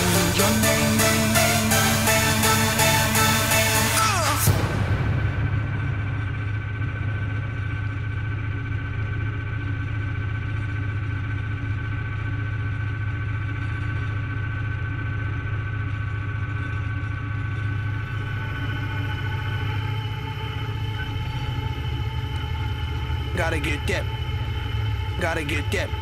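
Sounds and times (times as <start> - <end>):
tractor diesel engine droning: 0.0 - 4.7, 17.7 - 26.0.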